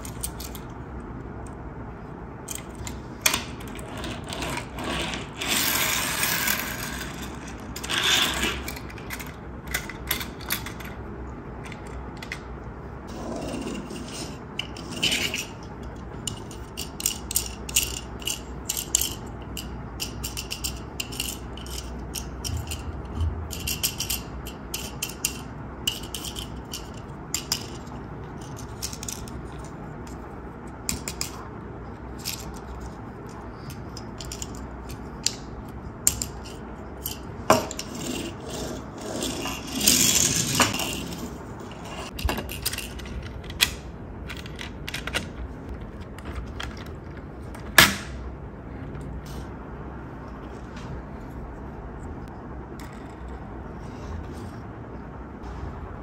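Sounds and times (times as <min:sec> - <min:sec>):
toy cars clicking and rattling: 0:02.5 - 0:11.0, 0:14.0 - 0:29.7, 0:30.9 - 0:31.4, 0:32.1 - 0:41.4.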